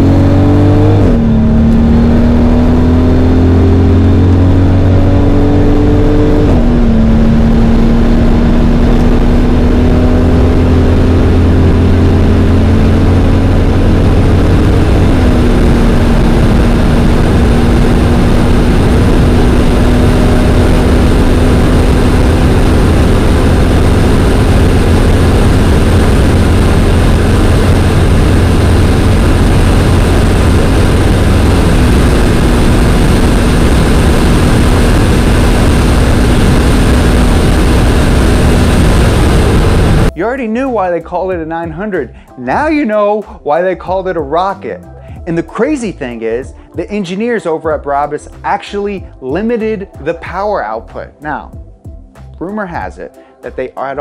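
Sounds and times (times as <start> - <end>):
car engine at full throttle: 0.0 - 40.2, 41.3 - 47.0, 47.8 - 51.7
wind and road noise: 0.0 - 40.2.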